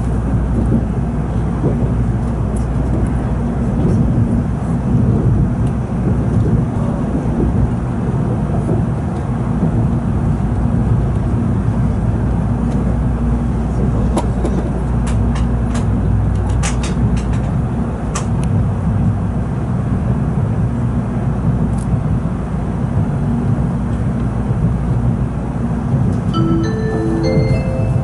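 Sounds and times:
train low rumble inside cabin: 0.0s - 28.0s
onboard chime melody: 26.4s - 28.0s.

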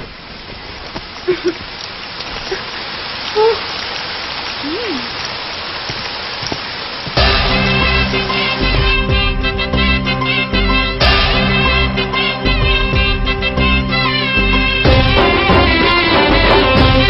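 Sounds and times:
steady rain falling: 0.0s - 17.0s
film song music: 7.2s - 17.0s.

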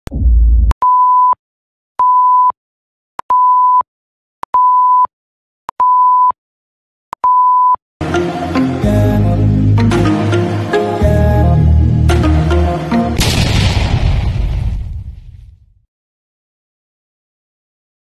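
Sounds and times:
music: 8.0s - 13.2s.

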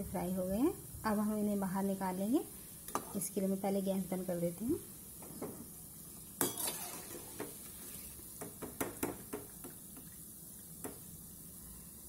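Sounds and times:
hot oil sizzling: 0.0s - 12.0s
metal spoon scraping a pan: 6.4s - 8.2s.

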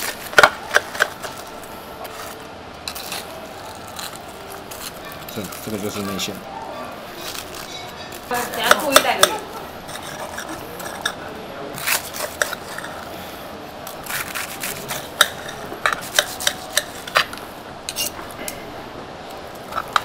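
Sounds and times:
knife cutting crisp crust: 8.4s - 13.1s, 13.8s - 18.2s.

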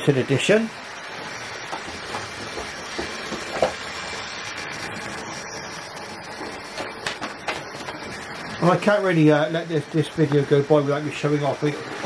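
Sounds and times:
model train motor whir: 0.5s - 12.0s
wheels clicking over rail joints: 1.7s - 3.8s, 6.3s - 8.2s.

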